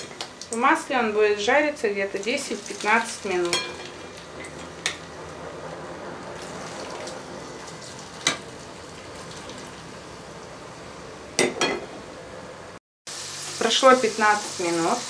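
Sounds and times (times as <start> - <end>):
potato sticks sizzling in oil: 0.0 - 5.3, 6.3 - 11.0, 13.1 - 15.0.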